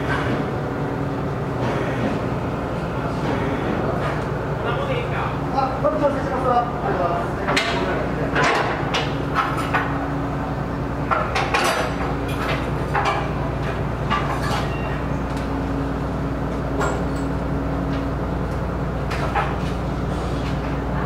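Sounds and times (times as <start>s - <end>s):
ship engines droning: 0.0s - 21.0s.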